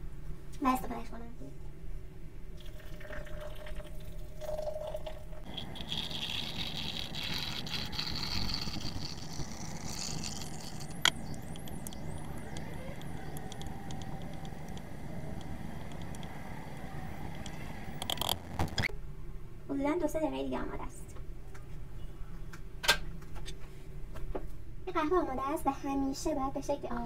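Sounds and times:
hot water pouring into glass: 2.6s - 18.6s.

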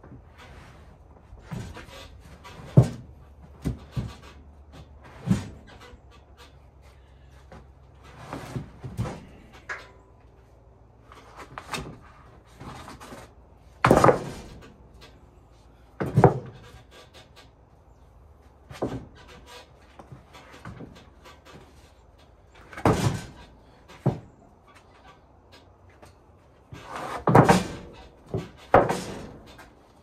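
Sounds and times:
wooden boards knocking and thumping: 1.4s - 5.8s, 11.3s - 14.8s, 16.0s - 16.8s, 18.7s - 19.3s, 22.6s - 24.4s, 26.7s - 29.8s.

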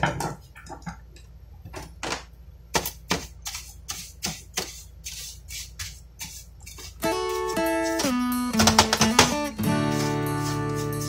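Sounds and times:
tools clicking on workbench: 8.0s - 9.4s.

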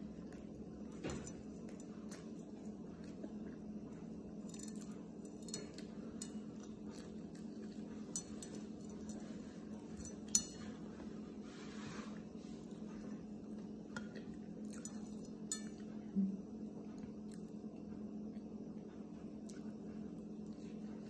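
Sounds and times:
person chewing food: 0.0s - 11.4s
steady low hum: 0.0s - 21.0s.

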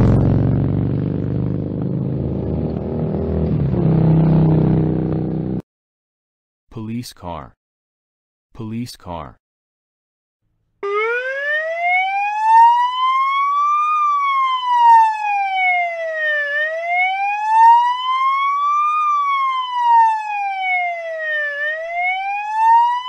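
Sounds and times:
police siren wailing: 10.8s - 23.0s.

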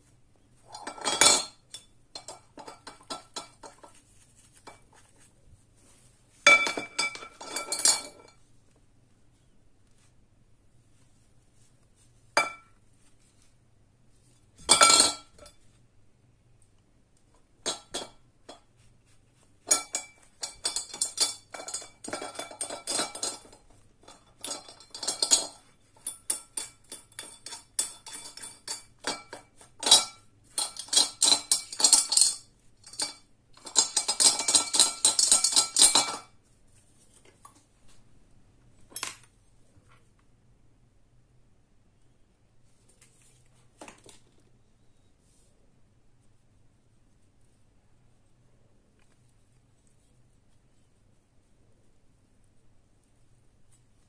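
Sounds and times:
bristle brush scrubbing: 3.4s - 6.5s, 18.6s - 20.6s
metal parts clinking on glass: 24.1s - 36.3s.

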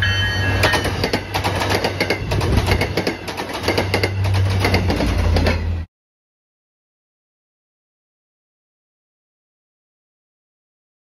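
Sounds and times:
train wheels clacking on rails: 0.1s - 5.9s.

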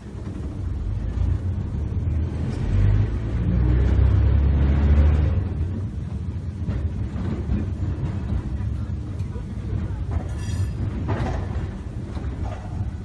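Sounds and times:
tram rumbling on rails: 0.0s - 13.0s.

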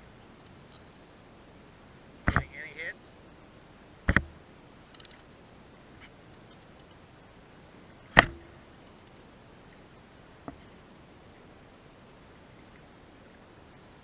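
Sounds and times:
low hiss: 0.0s - 14.0s
sharp click: 4.1s - 4.4s, 8.1s - 8.5s.

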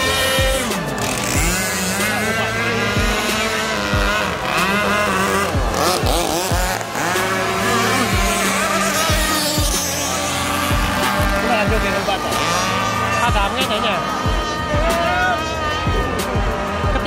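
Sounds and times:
model powerboat engines whining: 0.0s - 17.0s.

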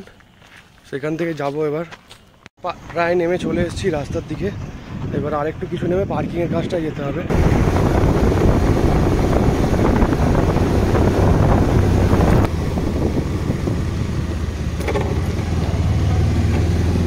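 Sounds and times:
wind on microphone: 3.2s - 17.0s
motorcycle engine running: 7.3s - 17.0s.

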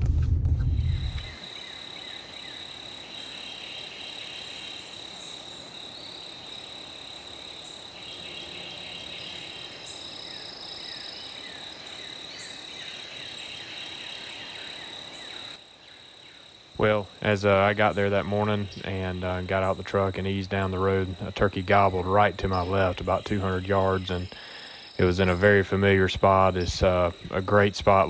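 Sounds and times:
truck engine rumble: 0.0s - 1.4s
high-pitched insect trill: 0.9s - 18.8s.

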